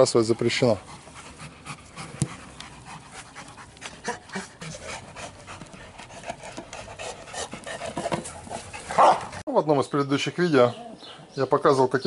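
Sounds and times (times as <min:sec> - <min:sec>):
dogs panting: 0:00.0 - 0:09.4.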